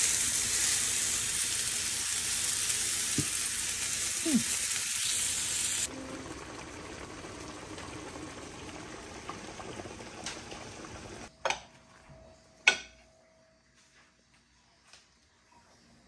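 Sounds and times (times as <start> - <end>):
chicken sizzling in a grill pan: 0.0 - 11.3
water boiling in a pot: 0.0 - 11.3.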